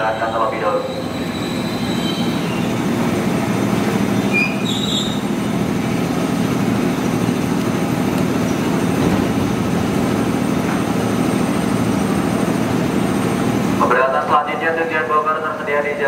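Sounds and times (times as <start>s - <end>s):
train low rumbling hum: 0.0s - 16.0s
brief high squeaks: 4.3s - 5.2s.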